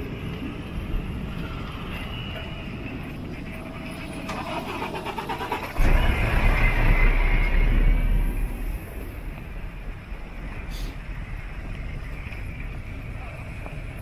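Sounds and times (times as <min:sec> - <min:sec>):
cars passing: 0:00.0 - 0:14.0
loud low rumble: 0:05.7 - 0:14.0.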